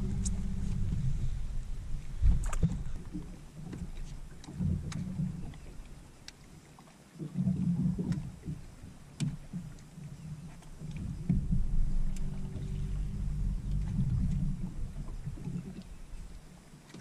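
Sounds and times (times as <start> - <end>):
electric trolling motor humming: 0.0 - 2.0, 11.4 - 16.3.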